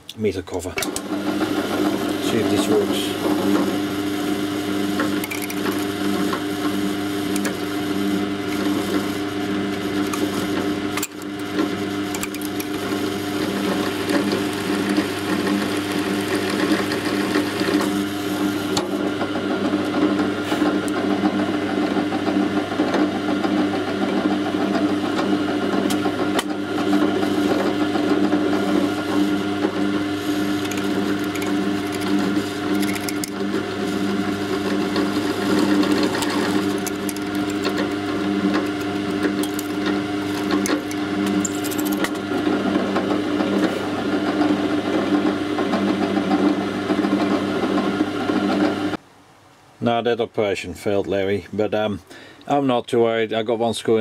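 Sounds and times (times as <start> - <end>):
drill press motor humming: 0.8 - 45.7.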